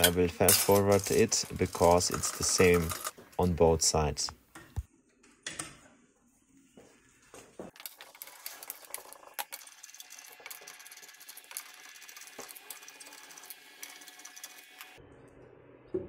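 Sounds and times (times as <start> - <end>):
hand tools clicking and rattling: 0.0 - 3.2.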